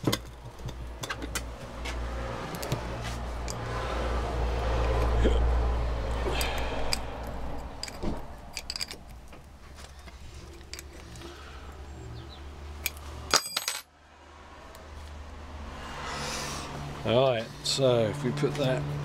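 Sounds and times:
metallic clicks and clinks: 6.3 - 11.3, 12.8 - 13.9
metal clatter: 6.9 - 11.3, 12.8 - 13.9.

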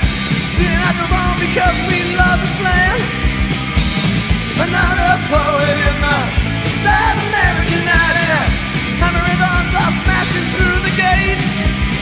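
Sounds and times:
drums beating: 0.0 - 12.0
punk rock band playing: 0.0 - 12.0.

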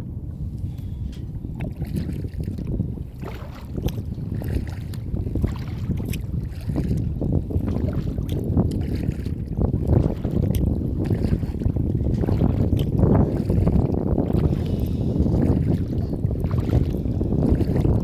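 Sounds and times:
wind buffeting microphone: 0.0 - 18.0
paddle splashing in water: 1.5 - 18.0.

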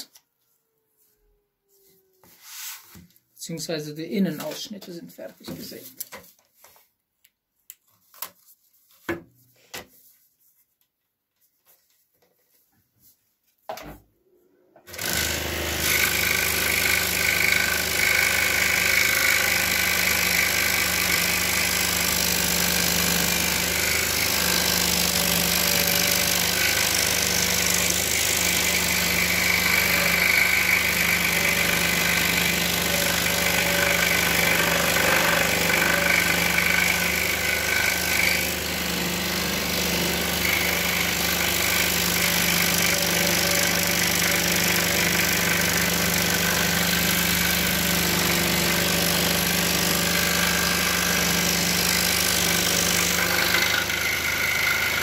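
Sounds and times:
scroll saw cutting wood: 14.8 - 55.0.

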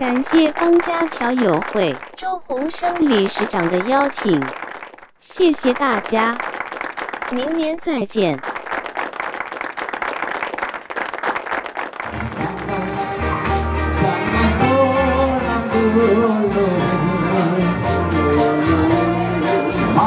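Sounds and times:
people clapping: 0.0 - 13.7
live band with horns: 12.1 - 20.0.

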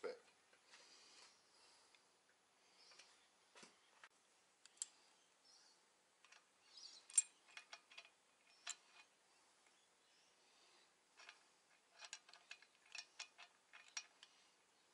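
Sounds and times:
bolts and tool clicking on metal: 6.2 - 9.8, 11.2 - 14.4.

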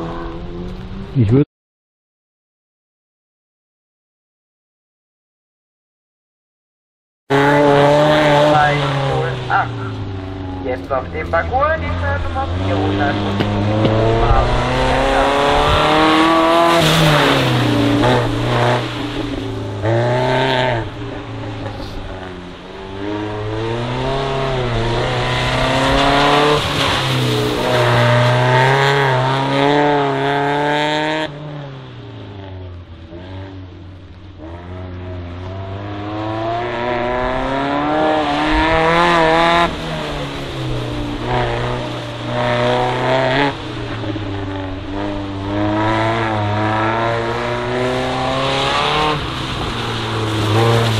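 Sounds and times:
car engine revving: 0.0 - 1.4, 7.3 - 50.9
tyres hissing on wet asphalt: 48.5 - 50.9.

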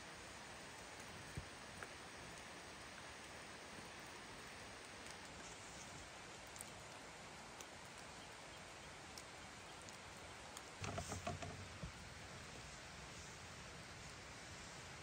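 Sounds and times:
light rain hiss: 0.0 - 15.0
raindrops ticking: 0.2 - 12.4
soft knocks and rustling: 10.8 - 12.0.

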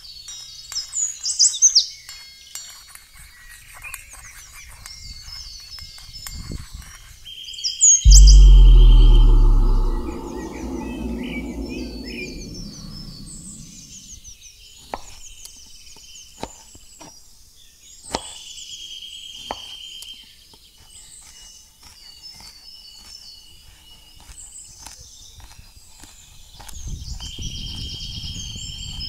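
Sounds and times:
loud low hum: 8.1 - 14.1.

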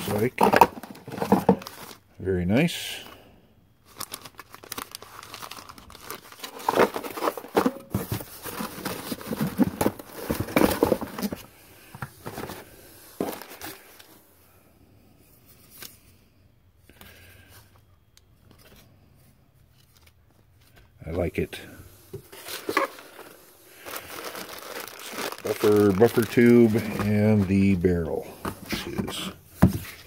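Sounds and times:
plastic bag crinkling and tearing: 3.9 - 7.6, 22.4 - 27.8.

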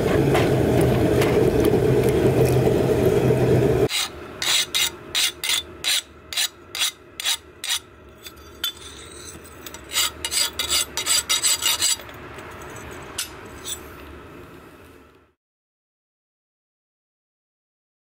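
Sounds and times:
file scraping steel: 3.9 - 14.0.

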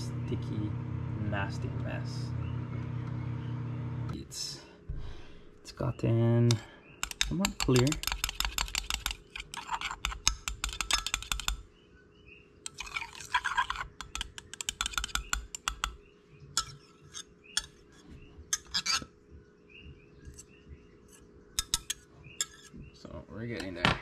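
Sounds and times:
spoon tapping glass: 7.0 - 9.1, 10.1 - 11.6, 14.0 - 16.0, 21.6 - 22.6
metal spoon scraping glass: 7.0 - 11.6, 12.7 - 16.0, 16.6 - 19.1, 21.1 - 22.8.

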